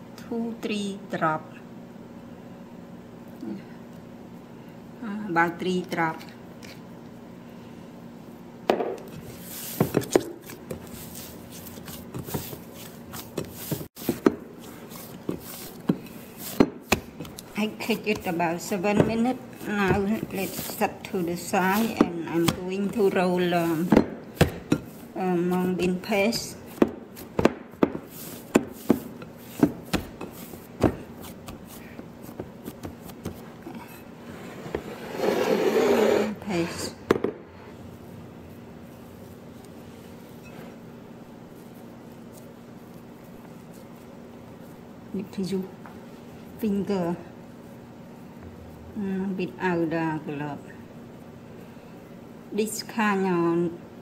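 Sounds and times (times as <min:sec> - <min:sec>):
hands kneading dough: 0:09.0 - 0:34.1, 0:37.8 - 0:48.9.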